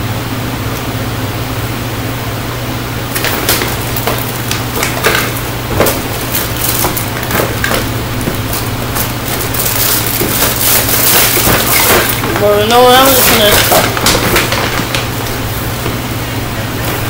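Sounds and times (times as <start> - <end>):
fan humming: 0.0 - 17.0
gift bag rustling and crinkling: 3.1 - 15.9.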